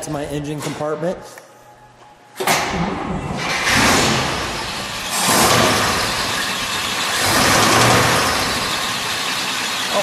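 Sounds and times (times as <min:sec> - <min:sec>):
car engine running: 0:03.4 - 0:10.0.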